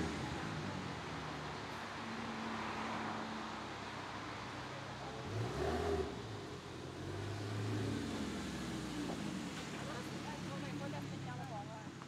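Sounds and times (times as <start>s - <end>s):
car engine at low revs: 3.3s - 11.4s.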